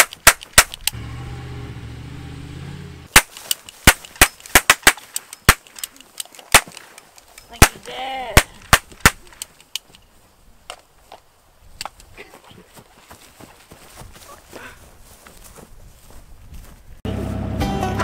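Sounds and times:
truck engine running: 0:17.1 - 0:18.0.

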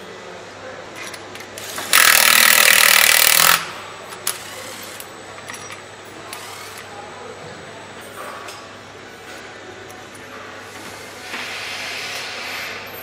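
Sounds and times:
cordless power tool driving bolt: 0:01.6 - 0:03.6.

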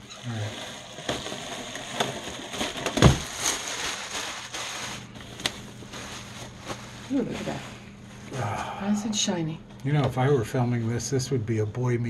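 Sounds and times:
packaging crackling and rustling: 0:00.0 - 0:08.3.

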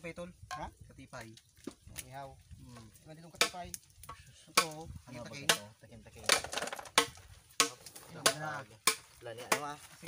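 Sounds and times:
sharp cooking knocks: 0:06.3 - 0:09.7.

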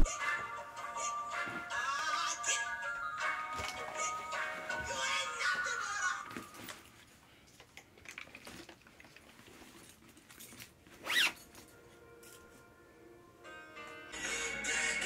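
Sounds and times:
bag rustling: 0:03.4 - 0:07.1, 0:09.4 - 0:11.7
zipper pulled shut on bag: 0:11.0 - 0:11.5.

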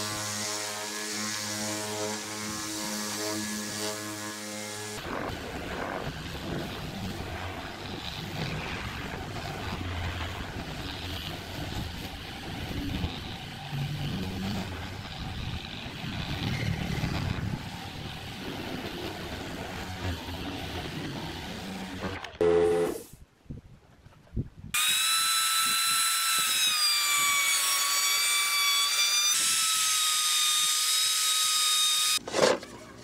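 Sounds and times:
orbital sander on wood: 0:00.0 - 0:23.0, 0:24.8 - 0:32.2.

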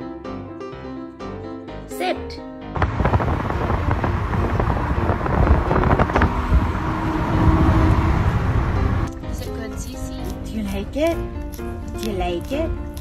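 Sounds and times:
wind buffeting microphone: 0:02.8 - 0:10.1
car road noise: 0:02.8 - 0:12.8.

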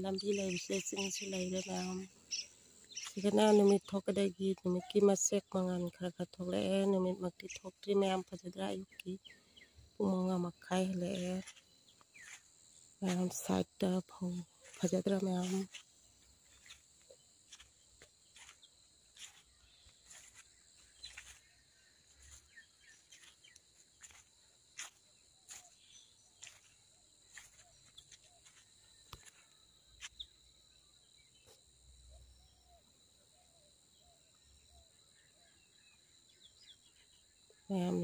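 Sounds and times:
crickets trilling: 0:00.0 - 0:38.0
insect clicks and chirps: 0:11.0 - 0:12.5, 0:14.6 - 0:30.4.

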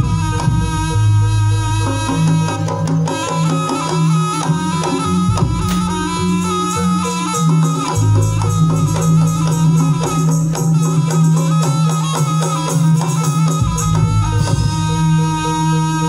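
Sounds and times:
drums and percussion rhythm: 0:00.0 - 0:16.0
high melody line: 0:00.0 - 0:16.0.

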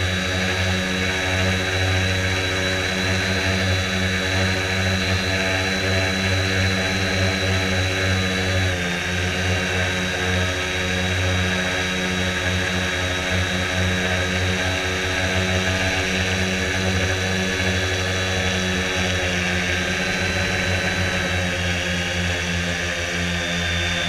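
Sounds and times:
model plane motor whine: 0:00.0 - 0:24.0.

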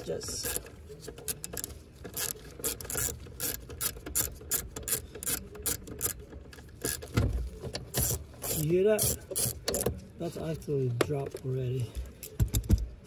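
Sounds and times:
socket ratchet clicking: 0:01.4 - 0:06.2.

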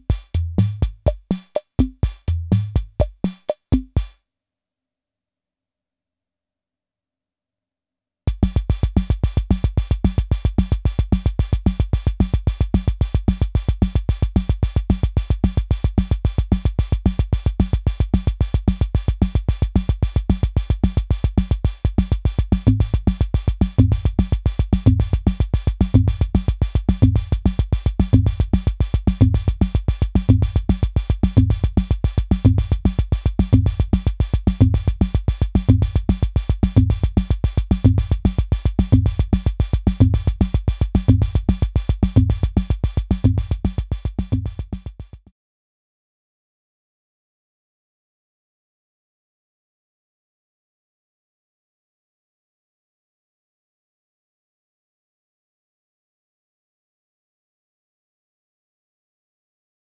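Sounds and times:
drum machine pattern: 0:00.0 - 0:04.1, 0:08.3 - 0:45.2.

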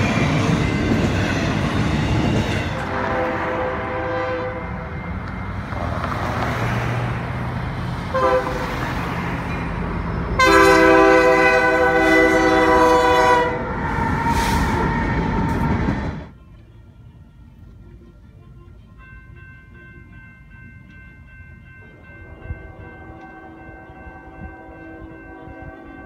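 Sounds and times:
train horn blasts: 0:00.0 - 0:05.4, 0:08.1 - 0:09.0, 0:10.2 - 0:19.1, 0:22.0 - 0:26.0
train rumbling past: 0:00.0 - 0:26.0.

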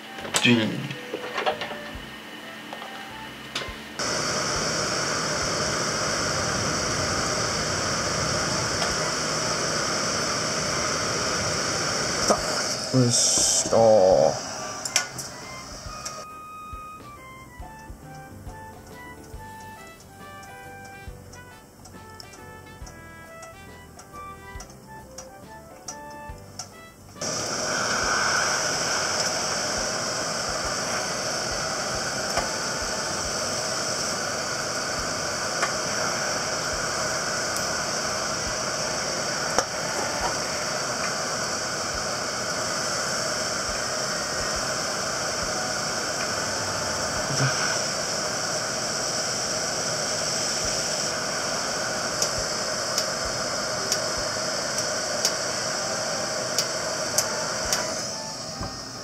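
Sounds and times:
heat gun blowing air: 0:04.0 - 0:16.3, 0:27.2 - 0:59.0.

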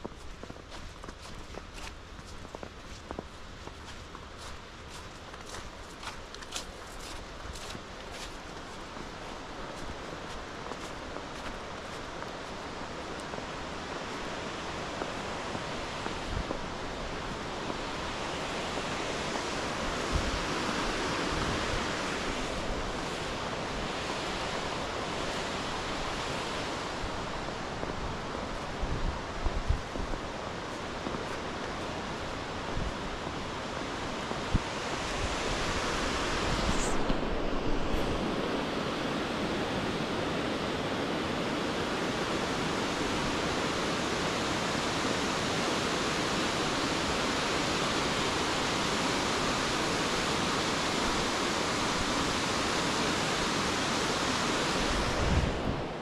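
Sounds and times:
waterfall and river rushing: 0:08.6 - 0:56.0
wind bumps on microphone: 0:19.8 - 0:24.5, 0:26.3 - 0:40.7, 0:54.5 - 0:56.0.

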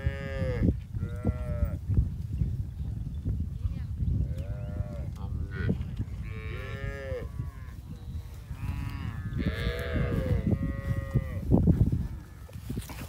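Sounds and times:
cattle mooing: 0:04.8 - 0:07.7, 0:08.6 - 0:11.4.

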